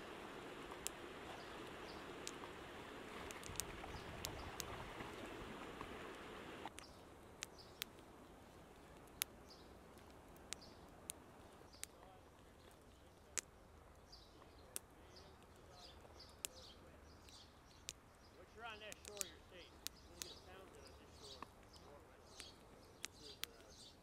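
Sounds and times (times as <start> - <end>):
river water rushing: 0.0 - 6.7
sharp ticks: 2.2 - 2.5, 3.2 - 4.8, 6.7 - 8.0, 8.9 - 12.0, 16.2 - 18.1, 18.7 - 23.8.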